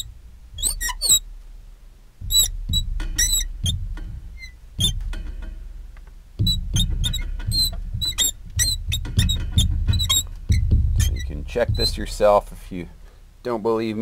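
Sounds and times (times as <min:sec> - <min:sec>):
marker squeaking on glass: 0:00.0 - 0:01.3, 0:02.2 - 0:05.0, 0:06.4 - 0:12.5.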